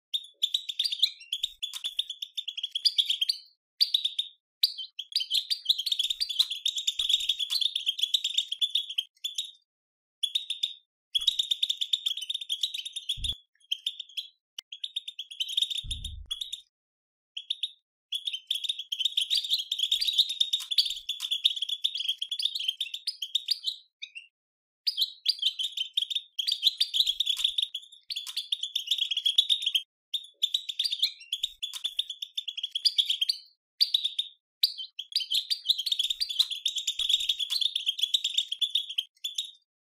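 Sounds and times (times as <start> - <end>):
soft low thumps: 15.9 - 16.4.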